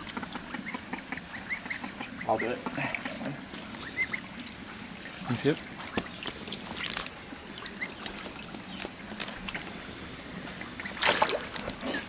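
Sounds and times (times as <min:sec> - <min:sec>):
duck splashing in water: 0:00.0 - 0:09.7, 0:10.7 - 0:12.0.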